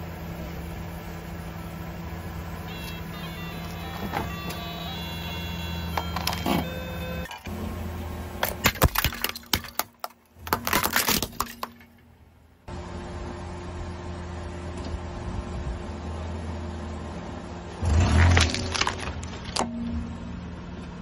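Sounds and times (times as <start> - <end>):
car engine idling: 0.0 - 8.4
toy guitar electronic beeping tune: 2.7 - 7.5
dish cracking and shattering: 8.4 - 12.1, 18.1 - 19.7.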